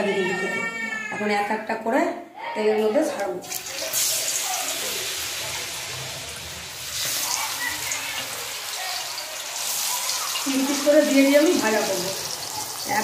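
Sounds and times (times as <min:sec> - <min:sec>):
vegetable slices sizzling in oil: 0:03.4 - 0:13.0.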